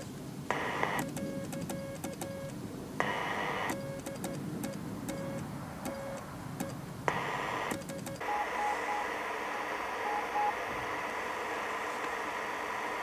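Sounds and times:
radio receiver hiss: 0.0 - 1.8, 3.0 - 13.0
morse code tones with clicks: 0.0 - 10.7
faint high morse tones: 7.7 - 10.8.

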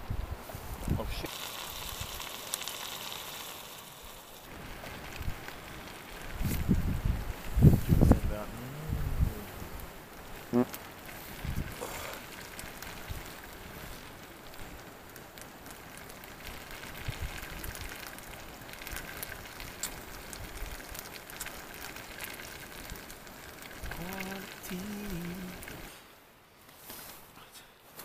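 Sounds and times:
campfire crackling and popping: 0.0 - 28.0
person's voice: 8.1 - 9.6, 23.9 - 25.7.

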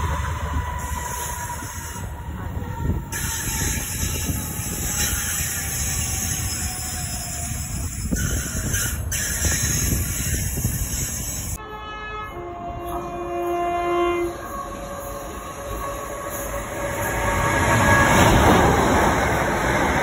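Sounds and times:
freight train rumbling past: 0.0 - 20.0
two-tone train horn: 11.5 - 18.5.

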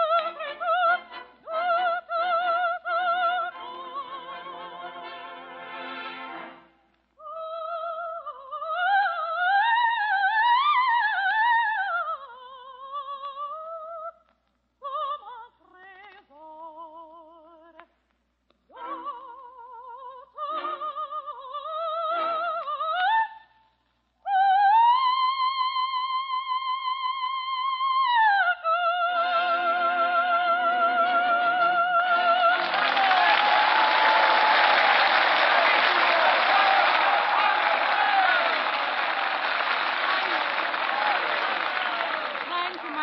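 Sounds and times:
operatic soprano singing: 0.0 - 5.6, 7.2 - 14.2, 14.8 - 17.9, 18.7 - 23.6, 24.3 - 32.9.

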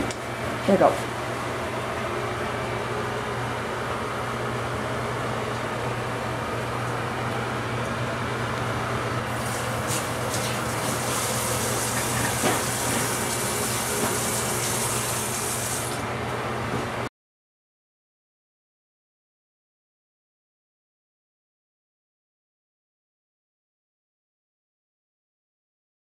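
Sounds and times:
hiss of running water: 9.3 - 16.0.

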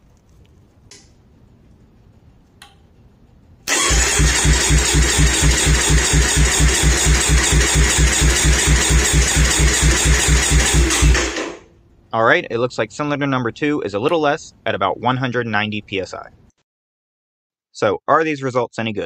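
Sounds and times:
engine starter whirring: 3.6 - 11.7
engine compression pulses: 3.7 - 11.7.

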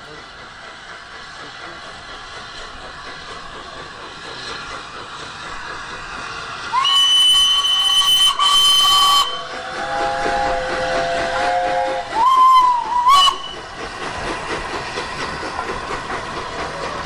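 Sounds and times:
steam hiss: 0.0 - 17.0
shrill steam whistle: 6.7 - 13.7.

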